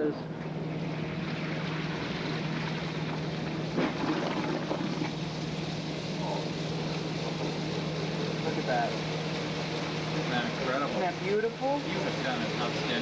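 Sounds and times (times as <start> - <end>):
washing machine motor hum: 0.0 - 13.0
wash water churning and sloshing: 0.5 - 8.9.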